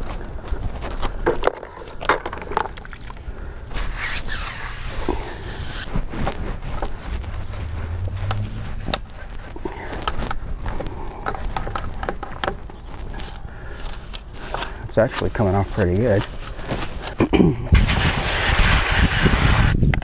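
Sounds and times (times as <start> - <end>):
tire brush rasping on rubber: 3.7 - 11.0, 17.8 - 19.7.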